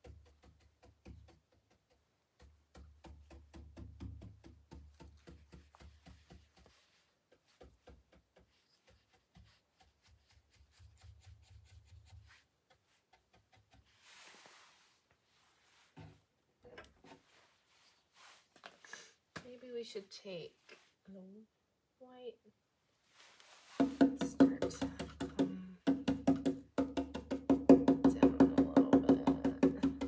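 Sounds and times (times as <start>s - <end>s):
paint brush dabbing on wood: 0.0s - 16.0s, 23.1s - 25.6s.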